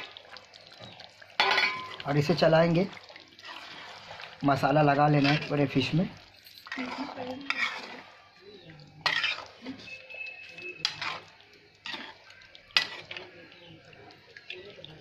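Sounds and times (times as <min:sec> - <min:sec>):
faint sizzle of cooking: 0:00.0 - 0:15.0
spoon clinking against metal pot: 0:01.4 - 0:02.0, 0:09.0 - 0:13.8
metal spoon scraping pot: 0:05.0 - 0:05.8, 0:06.6 - 0:08.3, 0:09.0 - 0:13.3.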